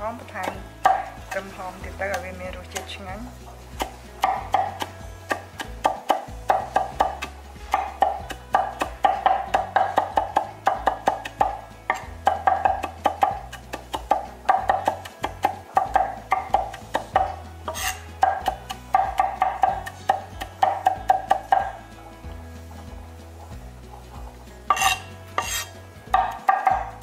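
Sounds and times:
cleaver chopping on wooden board: 0.4s - 1.2s, 3.8s - 21.8s, 24.7s - 27.0s
cleaver scraping board: 0.4s - 21.8s, 23.9s - 27.0s.

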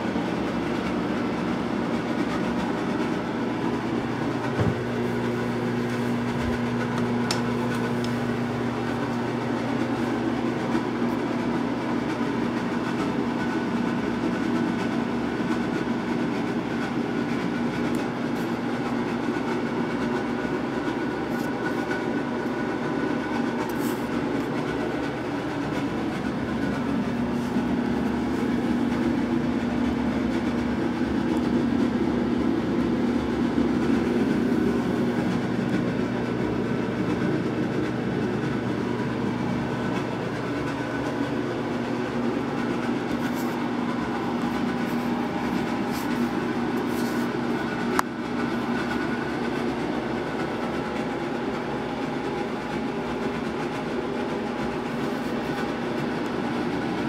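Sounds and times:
mechanical hum: 0.0s - 57.0s.

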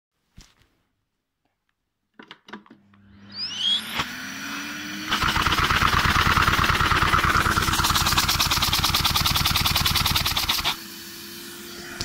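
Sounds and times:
vacuum cleaner motor whine: 2.8s - 12.0s
toy engine fast clatter: 5.1s - 10.8s.

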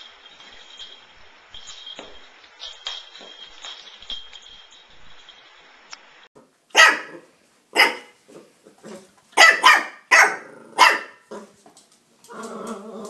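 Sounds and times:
puppy barking: 6.7s - 8.2s, 9.4s - 11.3s.

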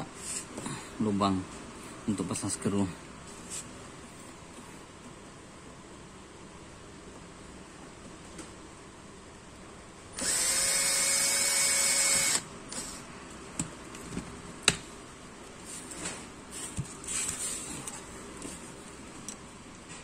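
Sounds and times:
cordless drill boring plastic: 10.2s - 13.0s.

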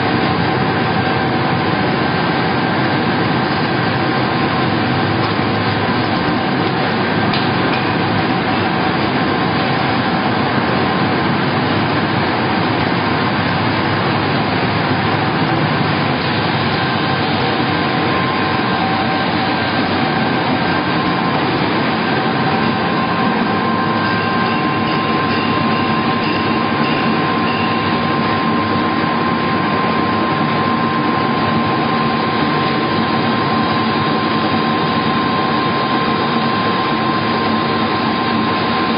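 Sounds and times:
loud steady machine noise: 0.0s - 38.9s
machine whining tones: 0.1s - 38.9s.

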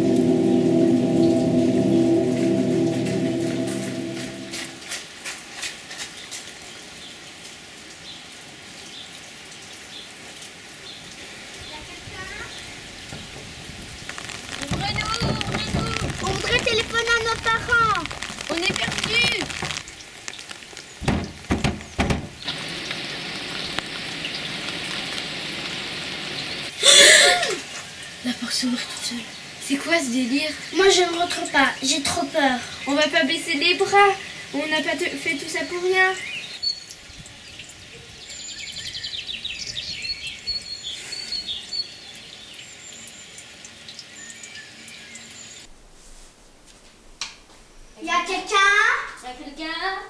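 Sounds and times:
steady rain hissing: 0.0s - 50.0s
sharp drops tapping: 14.1s - 22.5s
dull thumps: 21.0s - 22.4s.

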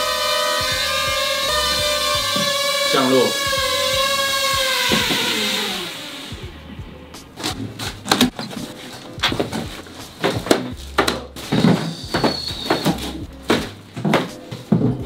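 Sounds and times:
boxes and packing material handled: 7.2s - 15.0s.

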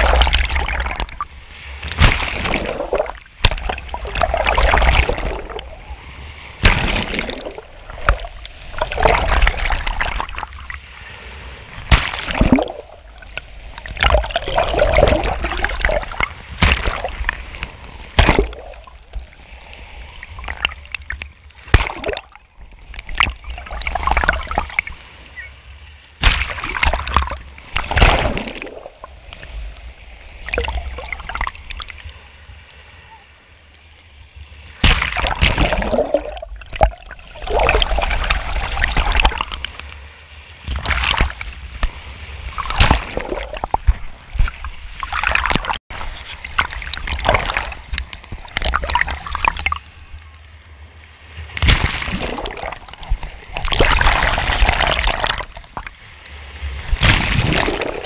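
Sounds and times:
water gurgling: 0.0s - 10.8s, 11.8s - 19.4s, 20.1s - 25.1s, 26.2s - 29.2s, 30.3s - 32.0s, 34.8s - 39.7s, 42.5s - 49.8s, 51.6s - 56.0s, 56.8s - 58.0s
small waves splashing: 0.0s - 58.0s.

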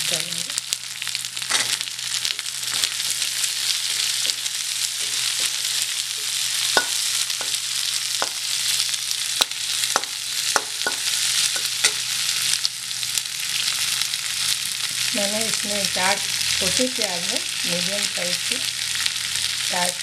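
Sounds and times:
onions sizzling in oil: 0.0s - 20.0s
metal spatula scraping pan: 3.8s - 7.6s.

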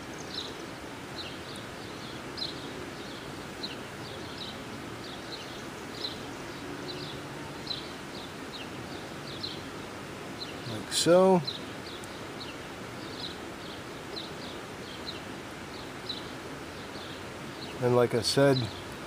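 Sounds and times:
small bird chirping: 0.0s - 9.7s
faint outdoor background: 0.0s - 19.0s.

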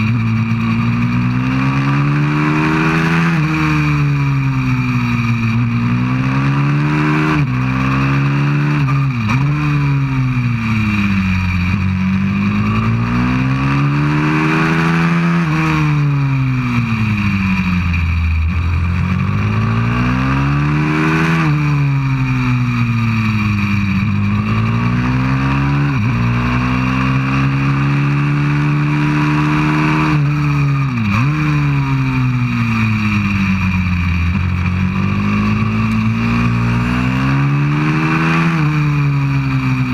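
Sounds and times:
motorbike engine revving: 0.0s - 39.9s.

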